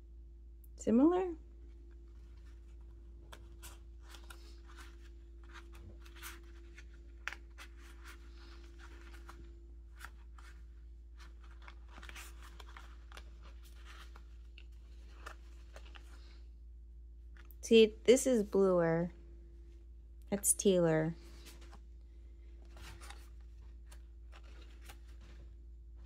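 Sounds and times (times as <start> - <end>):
faint steady hum: 0.0 - 26.0
paper cards flicking and rustling: 1.9 - 16.4, 21.2 - 26.0.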